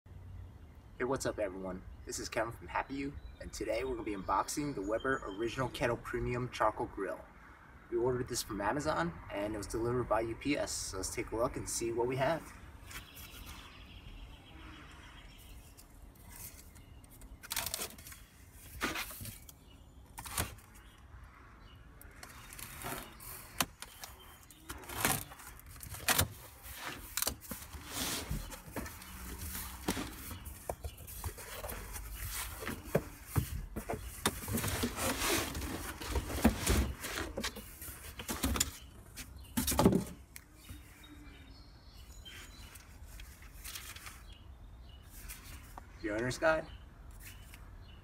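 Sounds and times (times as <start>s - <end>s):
cardboard flaps ripping and rustling: 17.4s - 19.5s, 22.3s - 38.7s.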